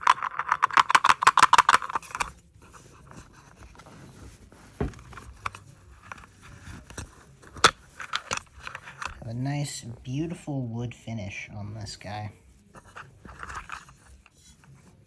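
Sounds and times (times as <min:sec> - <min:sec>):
soft taps and knocks: 0:03.8 - 0:05.6.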